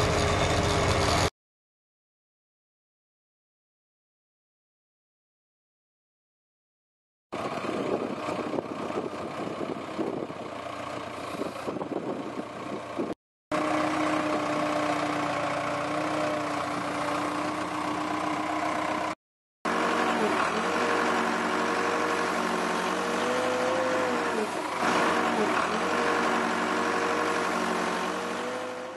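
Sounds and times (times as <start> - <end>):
diesel engine running: 0.0 - 1.3, 7.3 - 28.9.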